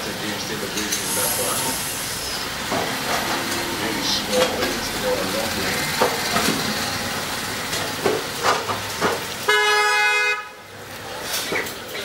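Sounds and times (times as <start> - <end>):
street background noise: 0.0 - 12.0
vehicle horn honk: 9.5 - 10.6.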